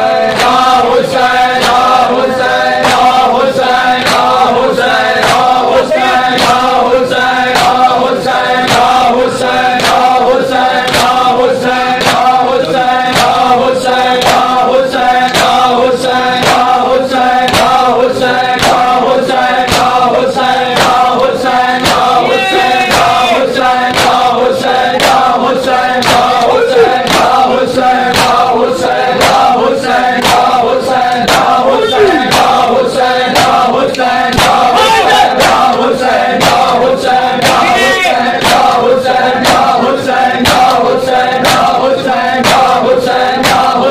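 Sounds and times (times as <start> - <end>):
men chanting in unison: 0.0 - 43.9
hands slapping chests: 2.8 - 3.2, 6.2 - 6.8, 26.0 - 27.4.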